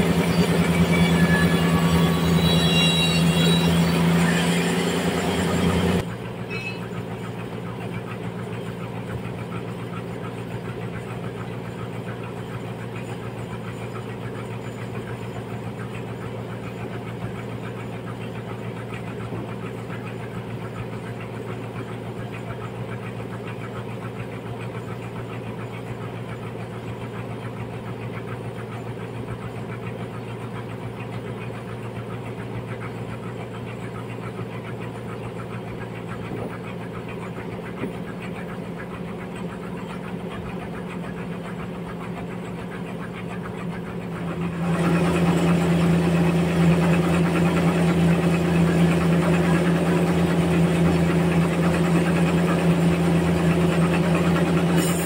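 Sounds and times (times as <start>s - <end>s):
band sawmill hum: 0.0s - 6.4s, 31.8s - 55.0s.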